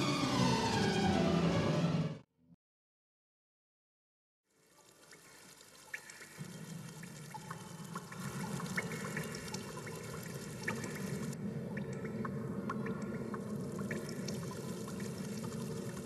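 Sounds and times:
water drips and plinks: 4.5 - 16.0
water trickling and pouring: 4.5 - 16.0.

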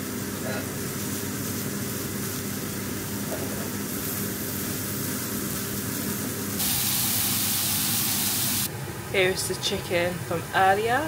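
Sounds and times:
patties sizzling in frying pan: 0.0 - 8.7.

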